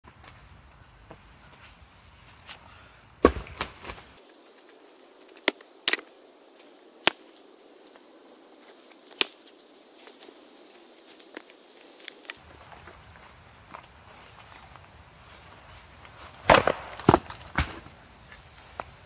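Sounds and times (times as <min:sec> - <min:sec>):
wooden logs knocking: 0:16.5 - 0:17.9.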